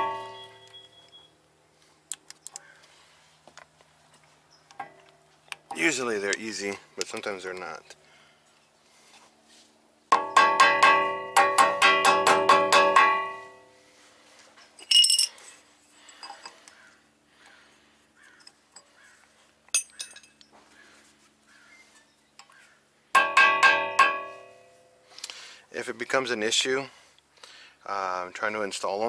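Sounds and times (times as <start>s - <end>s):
hammer ringing on metal: 0.0s - 0.8s, 10.1s - 13.8s, 23.2s - 25.0s
light metal clinks: 14.6s - 16.6s, 19.7s - 20.6s.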